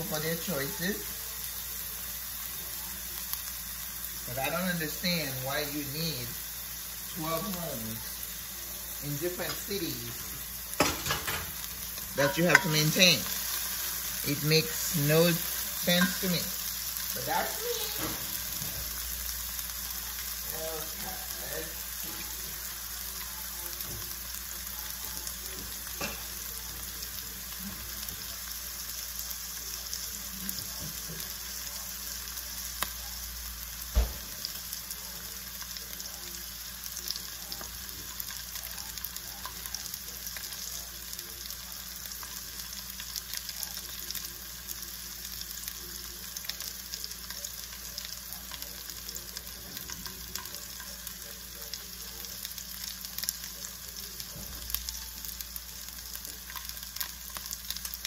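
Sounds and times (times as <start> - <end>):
onions sizzling in oil: 0.0 - 58.0
thump: 33.9 - 34.2.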